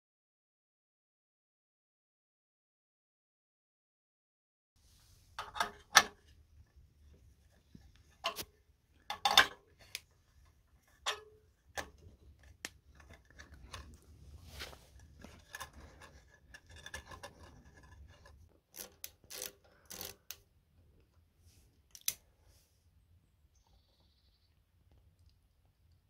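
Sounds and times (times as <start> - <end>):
soft rubbing: 4.8 - 5.4, 13.6 - 16.0.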